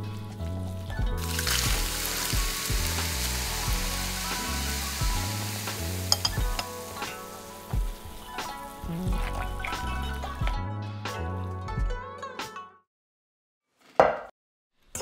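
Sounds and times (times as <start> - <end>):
background music with steady beat: 0.0 - 12.6
hot oil sizzling and bubbling: 0.1 - 9.7
spoon clicking on ceramic bowl: 6.1 - 6.7.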